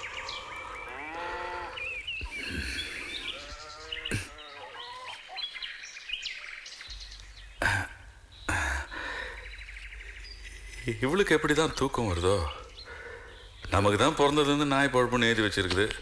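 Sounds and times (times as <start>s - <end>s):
small birds chirping: 0.0s - 16.0s
farm animal bleating: 0.5s - 1.9s, 3.1s - 5.2s.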